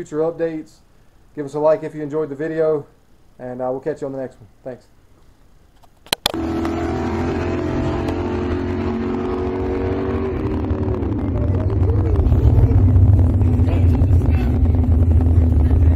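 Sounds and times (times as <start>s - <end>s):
engine running: 6.3s - 15.9s
low rumble: 7.4s - 15.9s.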